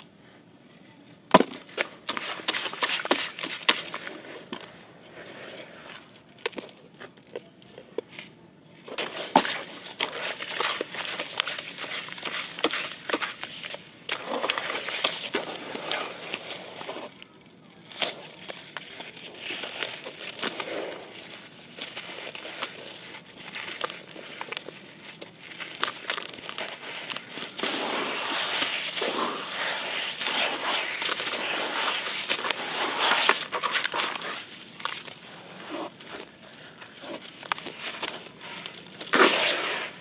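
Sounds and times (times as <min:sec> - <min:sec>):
wet concrete crunching by hand: 0:08.9 - 0:17.2, 0:17.8 - 0:40.0.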